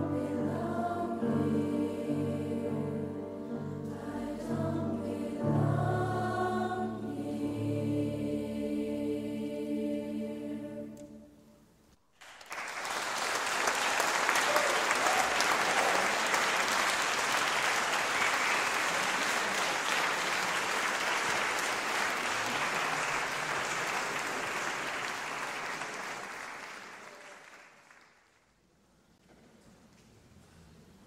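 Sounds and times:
audience applauding: 12.2s - 28.4s.

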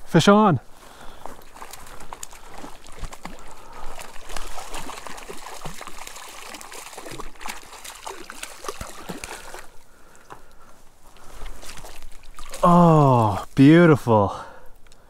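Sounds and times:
fish thrashing and splashing: 1.0s - 13.6s
landing net dipping into water: 1.4s - 10.6s, 11.4s - 13.1s.

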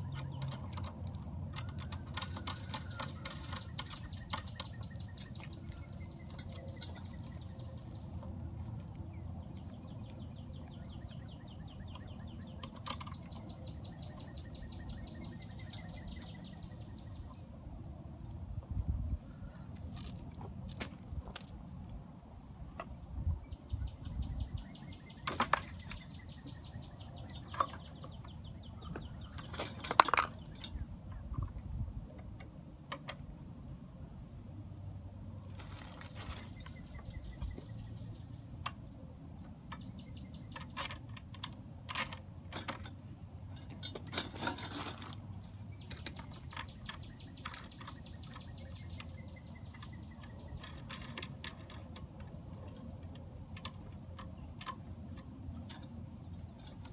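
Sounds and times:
plastic and metal parts clattering: 0.0s - 7.8s, 28.9s - 30.8s, 40.5s - 48.0s
bag of small hardware: 35.4s - 36.7s, 40.7s - 46.3s.

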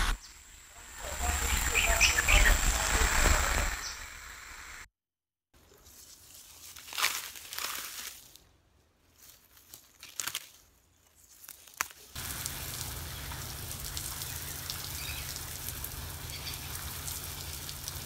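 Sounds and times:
garden hose spraying water: 0.0s - 4.8s, 11.4s - 18.0s
grass rustling: 5.6s - 18.0s.

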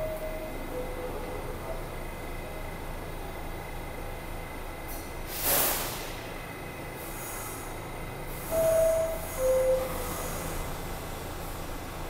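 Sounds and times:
air hiss: 5.3s - 6.2s
two-tone door chime: 8.5s - 10.0s.

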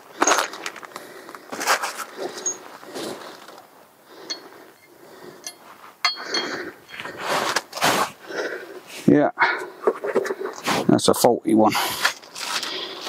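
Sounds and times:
metal parts clinking: 2.3s - 2.8s, 4.3s - 7.1s.

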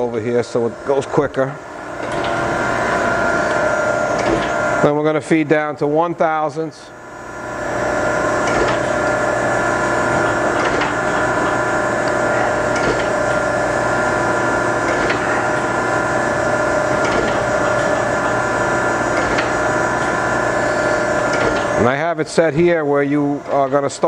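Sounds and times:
grinder spindle hum: 6.9s - 21.9s.

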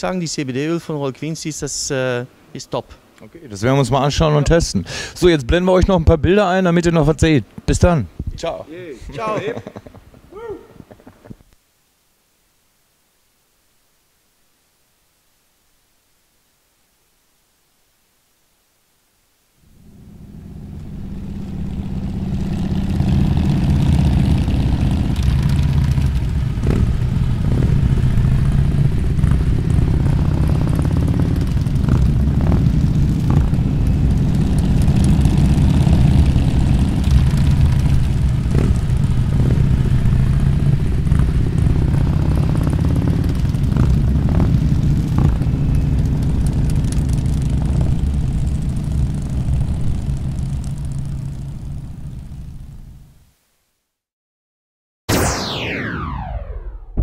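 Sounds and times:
motorcycles riding past: 19.8s - 52.6s.

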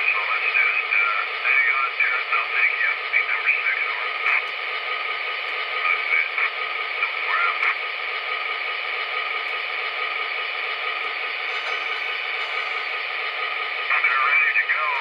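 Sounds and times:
tinny radio voices: 0.0s - 4.6s, 5.6s - 7.8s, 13.8s - 15.0s
steady hum: 0.0s - 15.0s.

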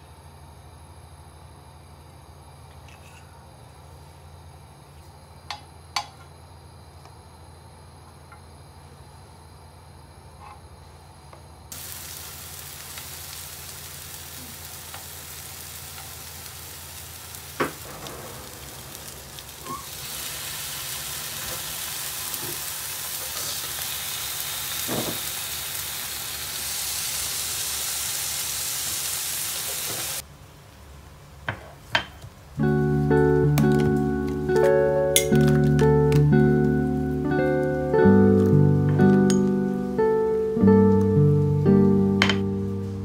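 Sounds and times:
food sizzling in oil: 11.7s - 30.2s.

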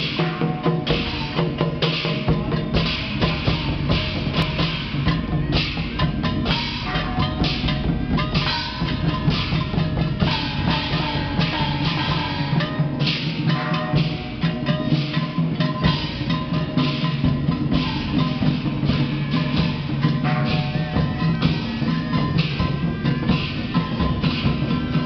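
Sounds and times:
barrel drum beating: 0.0s - 25.0s
hand gongs ringing: 0.0s - 25.0s.

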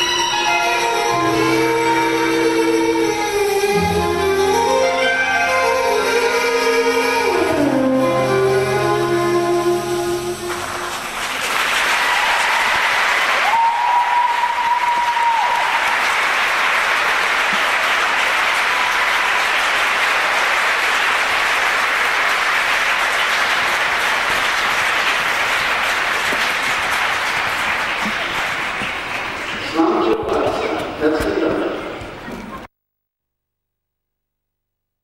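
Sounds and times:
audience applauding: 10.4s - 31.8s.

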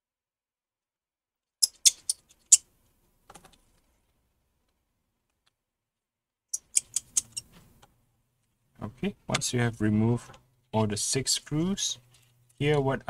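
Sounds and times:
small metal screwdriver clicks: 6.6s - 7.5s.

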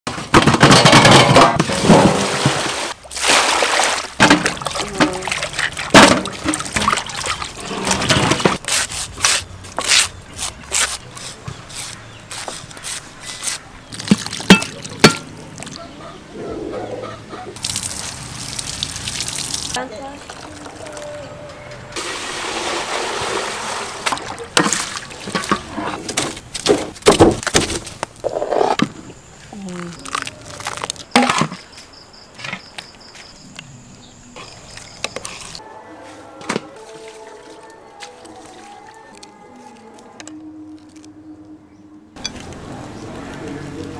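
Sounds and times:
water splashes: 1.7s - 8.6s, 17.6s - 21.2s, 22.0s - 25.7s
knives scraping kernels off cobs: 7.8s - 15.0s
water trickling over corn in metal bowl: 17.6s - 21.2s.

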